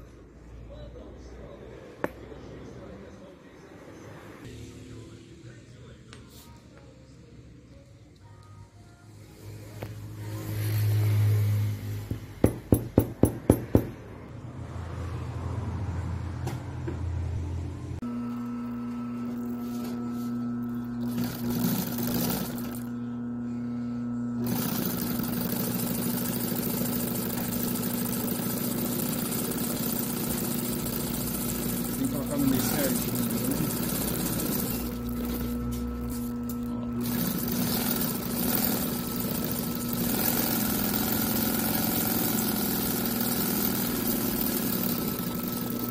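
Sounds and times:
sewing machine motor humming: 18.3 - 23.0, 24.4 - 45.9
sewing machine stitching webbing: 21.0 - 22.9, 24.4 - 35.4, 37.0 - 45.9.

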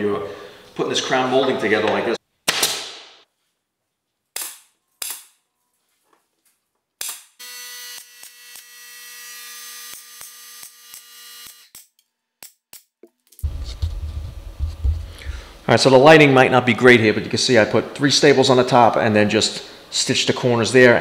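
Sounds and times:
pneumatic stapler firing: 2.5 - 3.1, 4.4 - 5.3, 7.0 - 8.7
steady pitched hum: 13.4 - 16.7.

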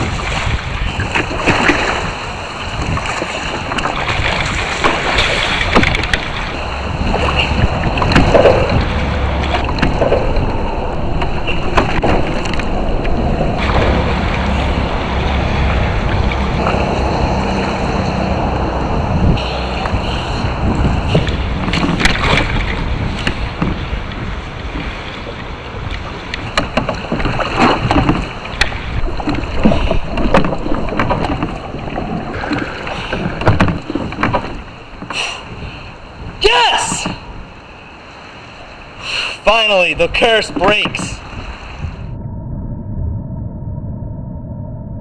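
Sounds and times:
sharp splashes and knocks: 0.0 - 35.6, 36.3 - 37.4
wind rumble on microphone: 0.0 - 39.0, 39.8 - 45.0
fish thrashing in water: 19.4 - 35.4.

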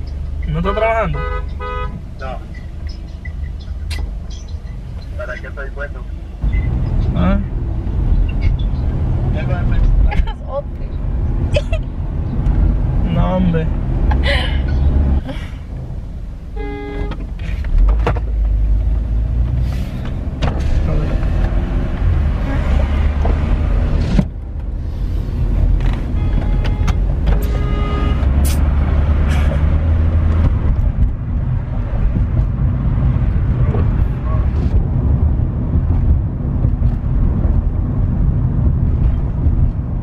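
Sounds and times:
car engine and road rumble: 0.0 - 40.0
car horn honks: 0.6 - 2.0, 16.5 - 17.2, 26.1 - 28.6.

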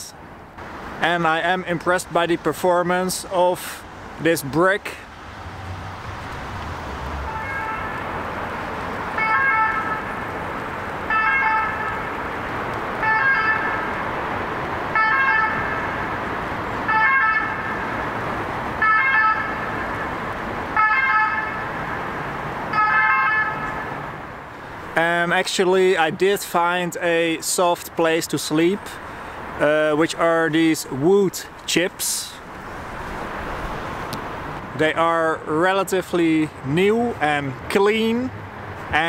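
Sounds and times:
hum of city traffic: 0.0 - 39.0
emergency vehicle siren: 5.6 - 24.2.

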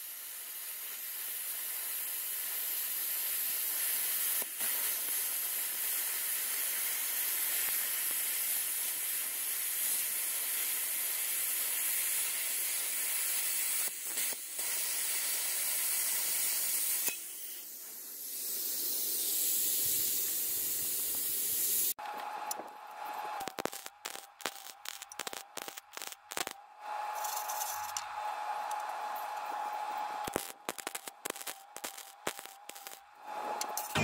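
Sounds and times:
plasma cutter hissing: 0.0 - 22.0, 23.4 - 26.6, 27.2 - 28.0, 30.2 - 34.0
sharp crackles: 23.4 - 26.6, 30.2 - 34.0.

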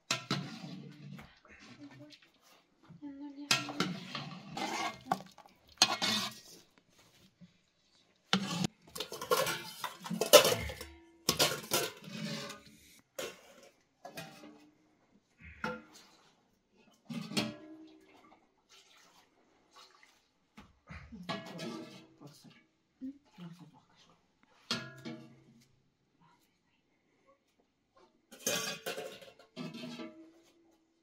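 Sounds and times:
metal ladle clinking against pot: 8.4 - 12.1.

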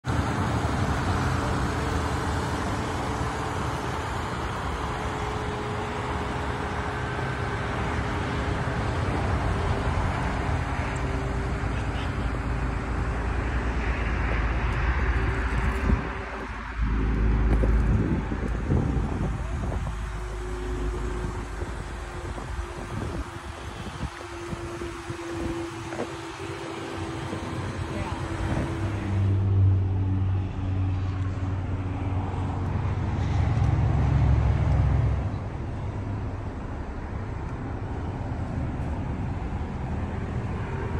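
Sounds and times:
road traffic noise: 0.0 - 40.9
wind rumble on microphone: 12.6 - 40.9.

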